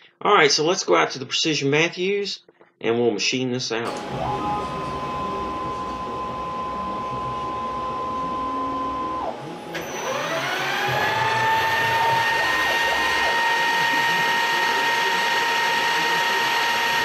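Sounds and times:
milling machine whine: 0:03.9 - 0:17.0
spindle motor spinning up: 0:03.9 - 0:17.0.

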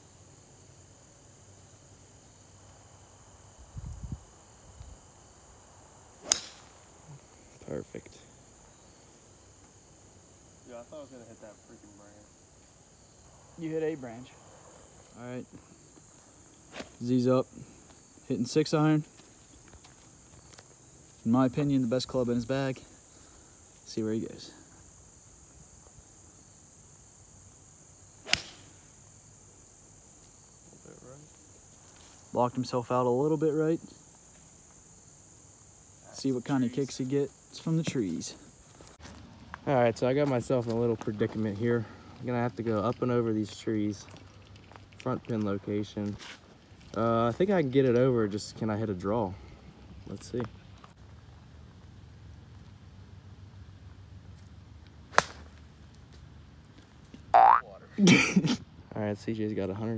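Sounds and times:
high chirring of insects: 0:00.0 - 0:59.9
golf club striking ball: 0:06.2 - 0:06.7, 0:28.3 - 0:28.7.

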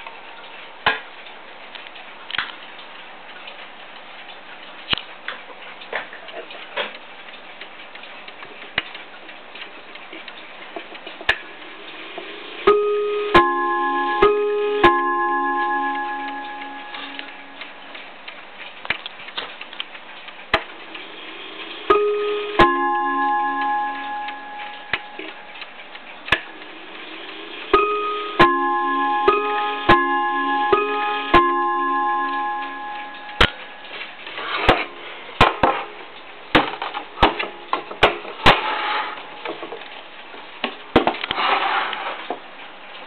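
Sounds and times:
clock ticking: 0:00.0 - 0:41.3
clock chiming on rods: 0:10.0 - 0:18.8, 0:21.8 - 0:38.5.

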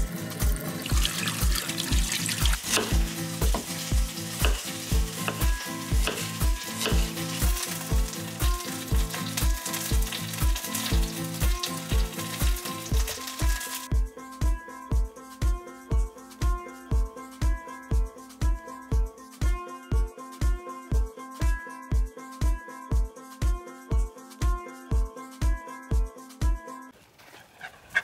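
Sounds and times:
kick drum beat: 0:02.7 - 0:07.1, 0:13.9 - 0:26.6.

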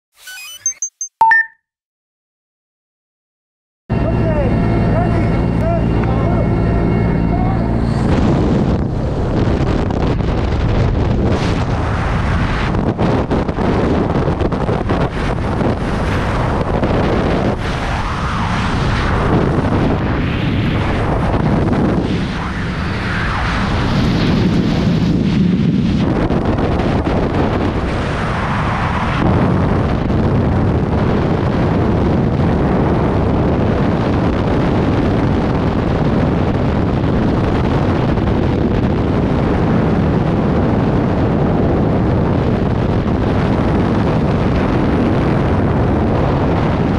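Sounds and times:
rushing wind on microphone: 0:04.0 - 0:46.9
wind buffeting crackles: 0:07.8 - 0:46.9.

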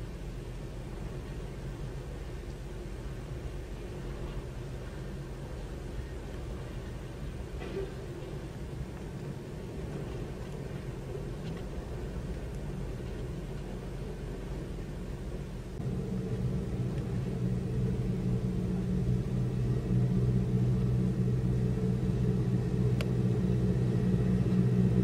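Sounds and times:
boat engine droning: 0:00.0 - 0:25.0.

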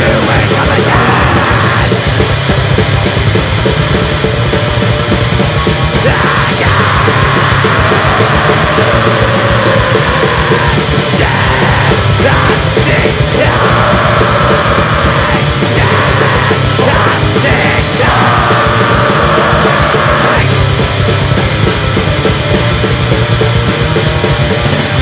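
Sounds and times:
harsh yelled vocals: 0:00.0 - 0:02.3, 0:05.8 - 0:20.9
distorted guitars: 0:00.0 - 0:25.0
fast drumming with kick drum: 0:00.0 - 0:25.0.

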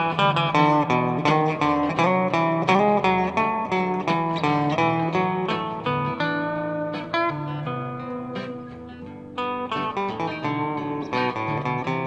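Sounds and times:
acoustic bass guitar: 0:00.0 - 0:12.0
acoustic guitar: 0:00.0 - 0:12.0
electric guitar: 0:00.0 - 0:12.0.

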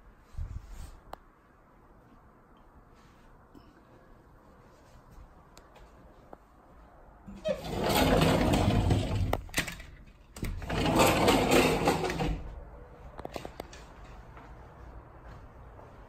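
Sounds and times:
sliding door rattling on track: 0:07.4 - 0:12.6.

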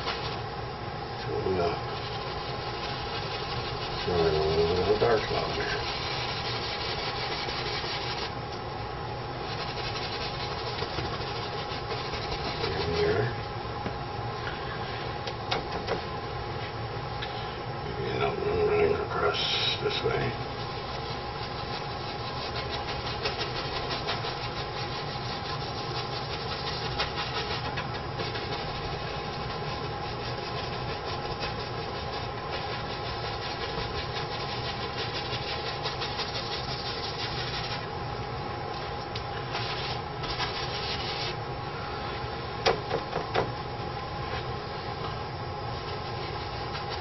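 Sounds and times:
steady background hum: 0:00.0 - 0:47.0
paintbrush rubbing on canvas: 0:01.3 - 0:08.4, 0:09.4 - 0:13.3, 0:19.4 - 0:37.9, 0:39.4 - 0:41.4, 0:45.8 - 0:47.0.

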